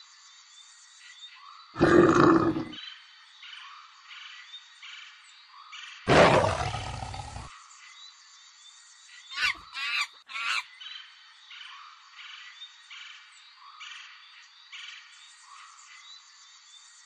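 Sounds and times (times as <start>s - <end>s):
jungle chirps background: 0.0s - 17.0s
animal roar: 1.8s - 2.8s, 6.1s - 7.5s
monkey shrieking calls: 9.4s - 10.6s.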